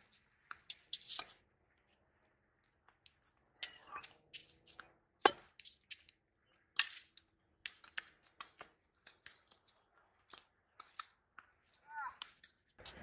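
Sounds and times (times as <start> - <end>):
racket hitting tennis ball: 5.2 - 5.7
tennis ball bouncing: 5.2 - 5.7.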